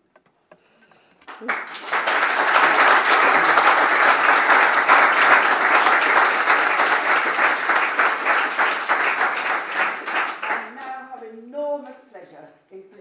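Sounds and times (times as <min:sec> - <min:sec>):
audience applauding: 0:01.2 - 0:11.2.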